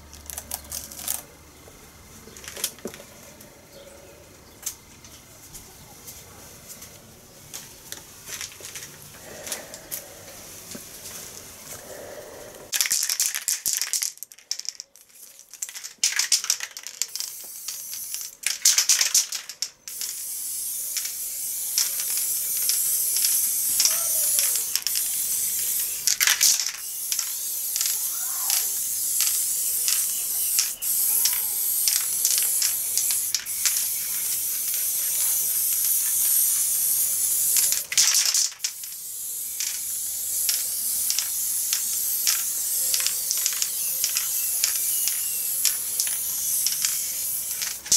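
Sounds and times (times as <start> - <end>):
spray paint can hissing: 8.6 - 10.3, 11.5 - 47.9.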